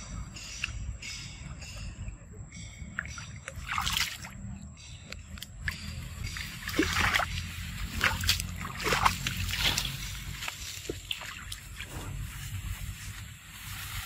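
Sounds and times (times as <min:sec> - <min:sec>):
water splashing and sloshing: 0:02.7 - 0:04.6, 0:05.4 - 0:14.0.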